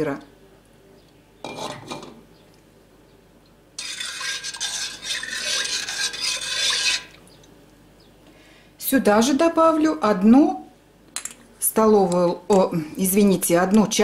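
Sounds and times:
metal spoon scraping a pot: 0:01.4 - 0:02.2, 0:03.8 - 0:07.2.

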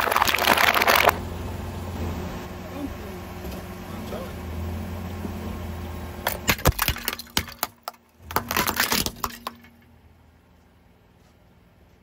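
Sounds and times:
car engine hum: 0:00.0 - 0:12.0
ceramic bowl cracking and shattering: 0:06.2 - 0:09.8.

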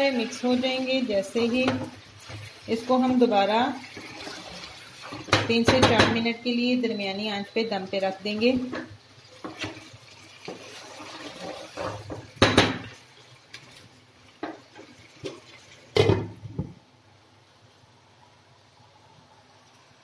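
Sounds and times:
chicken sizzling in frying pan: 0:00.0 - 0:16.6
wooden spatula knocking on pan: 0:05.3 - 0:06.2, 0:12.1 - 0:12.9.

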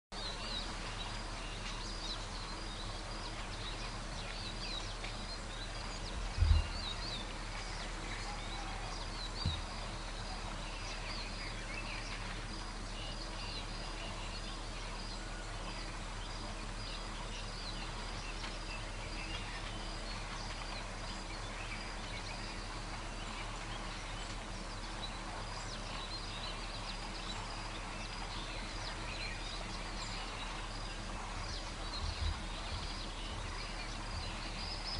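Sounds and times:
low hum: 0:00.2 - 0:34.9
small birds chirping: 0:00.2 - 0:34.9
steady background hiss: 0:00.2 - 0:34.9
dull low thump: 0:06.0 - 0:07.2, 0:09.4 - 0:09.9, 0:31.4 - 0:34.8.

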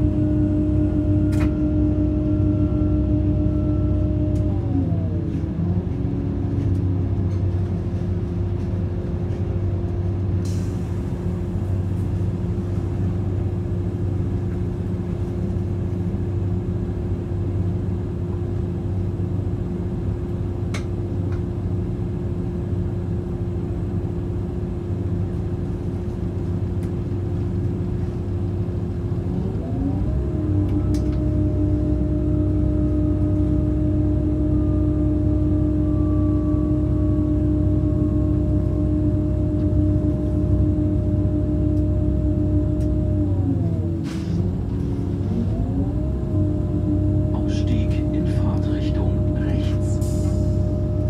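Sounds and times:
train drive whine: 0:00.0 - 0:51.0
train rumble: 0:00.0 - 0:51.0.

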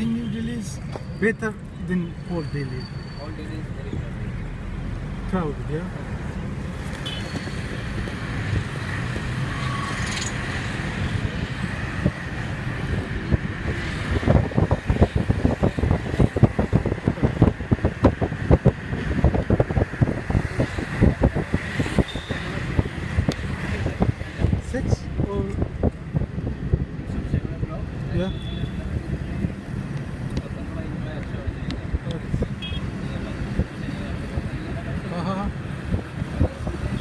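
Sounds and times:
road and engine noise: 0:00.0 - 0:37.0
wind buffeting microphone: 0:10.8 - 0:27.7, 0:33.2 - 0:37.0.

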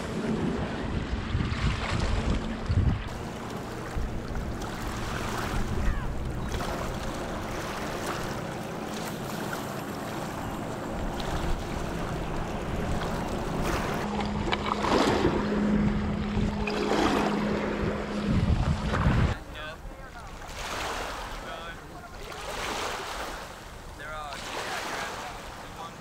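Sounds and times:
ocean surf washing on shore: 0:00.0 - 0:26.0
wind buffeting the microphone: 0:00.1 - 0:09.6, 0:10.2 - 0:20.5
steady low hum: 0:02.1 - 0:20.4.

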